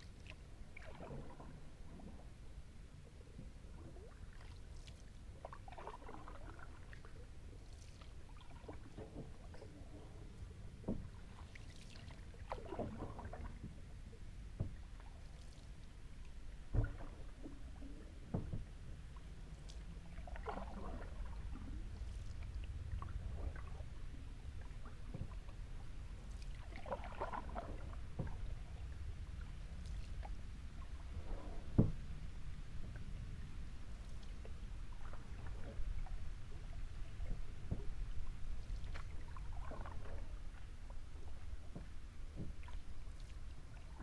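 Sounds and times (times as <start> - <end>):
paddle splashing in water: 0.0 - 2.2, 3.8 - 13.8, 14.6 - 32.2, 33.8 - 44.0
paddle knocks: 14.6 - 14.8, 16.7 - 17.6, 18.2 - 18.7, 31.2 - 32.0, 41.7 - 42.8.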